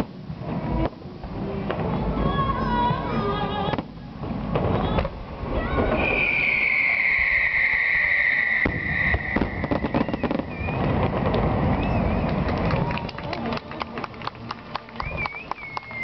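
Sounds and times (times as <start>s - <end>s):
firework bangs and crackles: 0.0s - 16.0s
firework whistle: 5.6s - 12.4s, 15.0s - 16.0s.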